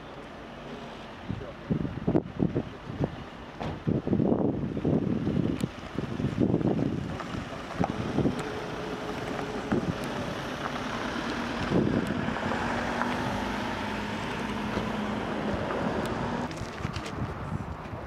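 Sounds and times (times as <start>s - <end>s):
wind noise on microphone: 1.2s - 18.0s
vehicle engine running: 4.6s - 16.6s.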